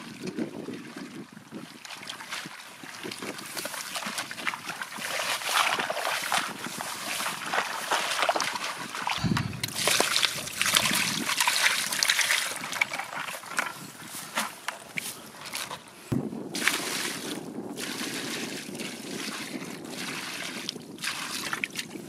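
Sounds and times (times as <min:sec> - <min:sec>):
muddy water splashing: 0:00.0 - 0:15.8, 0:16.5 - 0:22.0
water splattering and trickling: 0:01.8 - 0:13.7.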